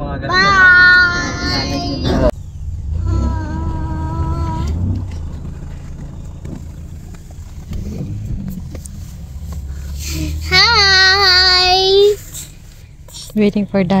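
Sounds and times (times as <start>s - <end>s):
car engine idling: 0.0s - 14.0s
child singing: 0.2s - 2.3s.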